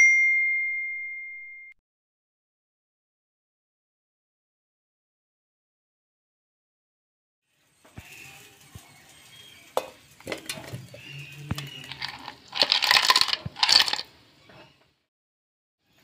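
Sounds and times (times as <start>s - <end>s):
ice cubes clattering against steel: 11.5s - 14.1s.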